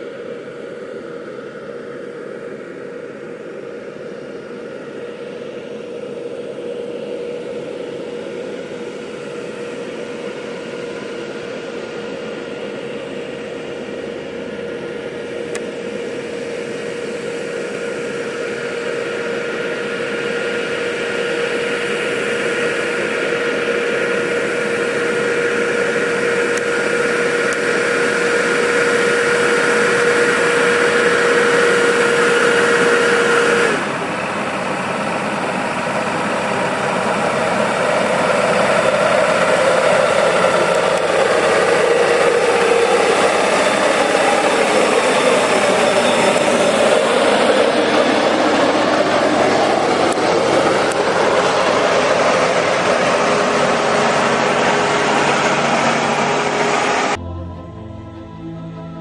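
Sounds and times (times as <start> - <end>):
steady hum: 0.0 - 59.0
diesel truck passing: 24.0 - 59.0.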